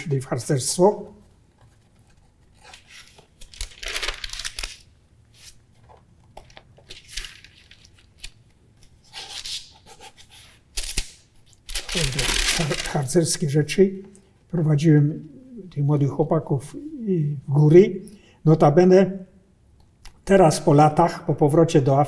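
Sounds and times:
album pages turning: 1.3s - 9.5s, 10.8s - 13.2s
tissue paper rustling: 11.7s - 13.0s.

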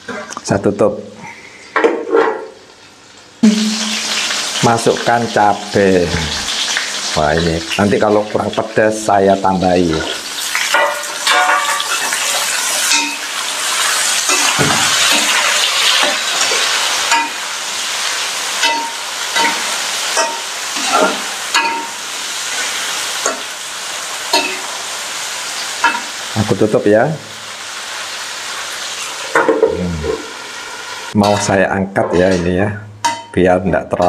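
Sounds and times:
food sizzling in hot oil: 2.4s - 31.6s
metal spatula scraping wok: 3.5s - 4.6s, 18.5s - 23.5s.

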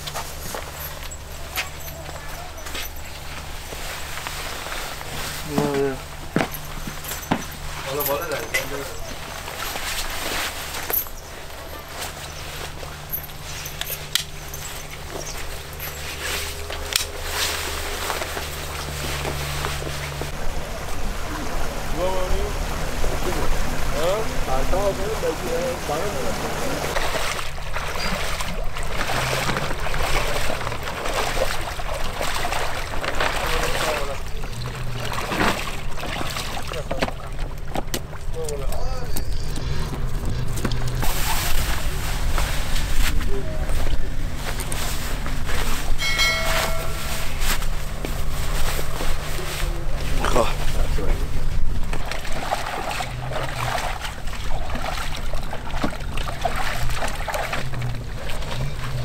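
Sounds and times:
light water splashes: 0.0s - 59.0s
shallow water sloshing: 0.0s - 59.0s
low wind rumble: 12.3s - 28.0s, 34.2s - 59.0s.

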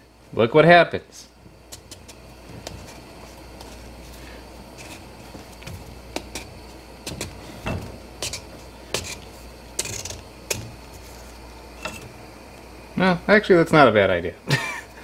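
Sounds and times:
vegetable peeler scraping: 8.2s - 12.0s.

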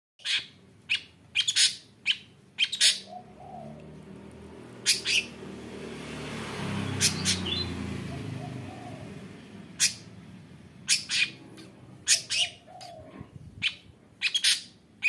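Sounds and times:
bird giving harsh calls: 0.2s - 3.8s, 4.8s - 5.4s, 6.8s - 9.1s, 9.7s - 10.2s, 10.8s - 14.9s.

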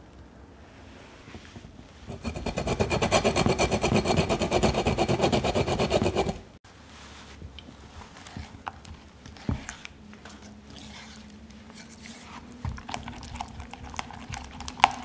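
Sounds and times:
peel grated on hand grater: 2.1s - 6.4s.

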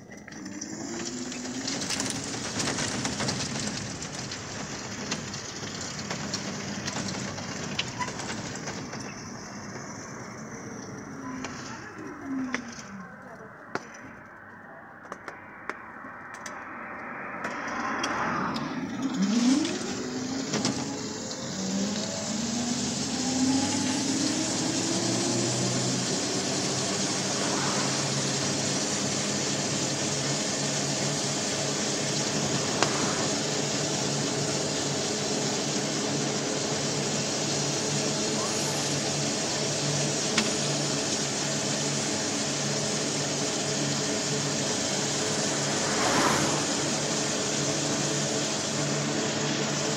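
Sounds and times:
tyres hissing on wet road: 0.0s - 12.8s, 17.5s - 49.9s
electric motor whine: 18.6s - 49.9s.

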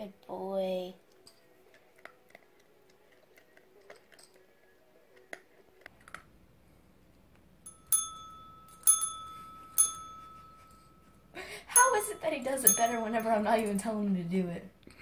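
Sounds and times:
desk bell ding: 7.7s - 13.4s.

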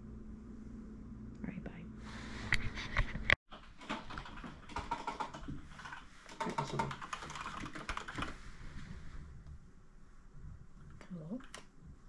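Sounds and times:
computer keyboard typing: 3.5s - 8.4s.

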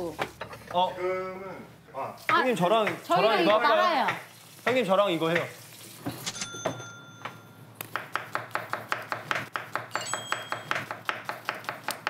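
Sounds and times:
knife chopping on cutting board: 7.8s - 12.0s.

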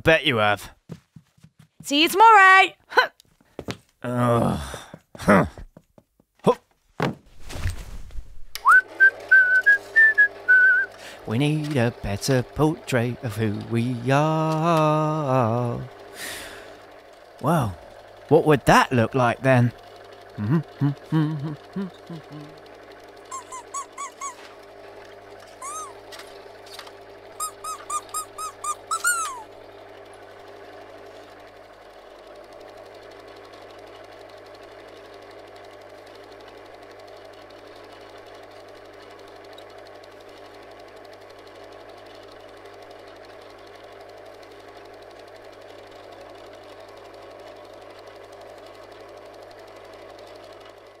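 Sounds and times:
mechanical whirr with low hum: 4.0s - 5.6s, 7.2s - 51.0s
high squeaks: 23.3s - 24.6s, 25.5s - 26.0s, 27.4s - 29.5s.

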